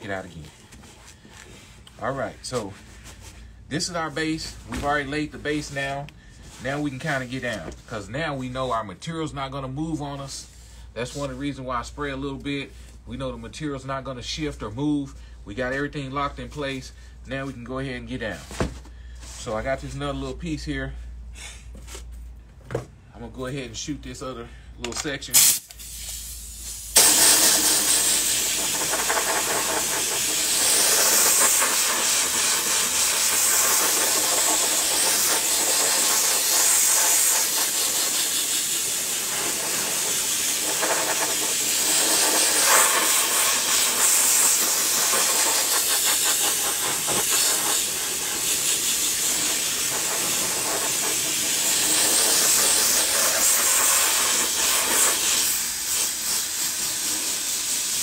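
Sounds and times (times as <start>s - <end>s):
spray gun hissing: 25.4s - 58.0s.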